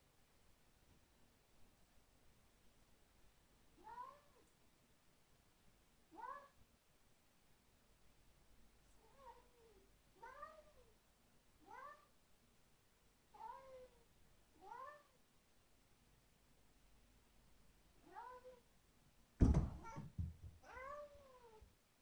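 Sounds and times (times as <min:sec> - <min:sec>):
cat yowling: 0:06.2 - 0:06.6, 0:11.7 - 0:12.1, 0:13.4 - 0:14.0, 0:14.6 - 0:15.1, 0:19.8 - 0:21.6.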